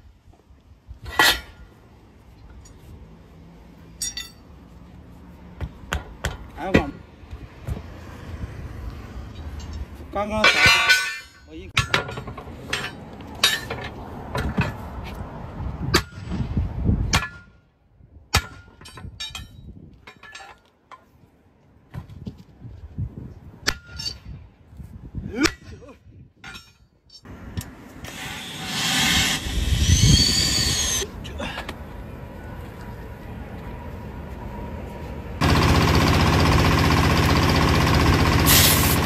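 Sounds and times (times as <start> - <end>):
sledgehammer clanging on steel rim: 9.6 - 13.9, 26.4 - 27.3
compressed air hissing: 28.0 - 31.0, 38.5 - 39.0.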